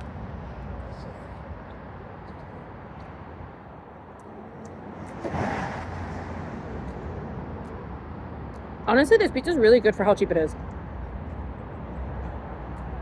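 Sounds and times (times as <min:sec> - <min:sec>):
freeway traffic rumble: 0:00.0 - 0:13.0.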